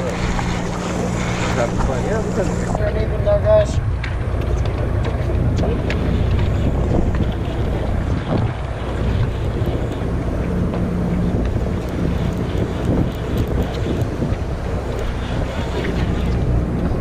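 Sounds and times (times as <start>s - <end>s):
boat engine drone: 0.0s - 17.0s
wind buffeting microphone: 0.0s - 17.0s.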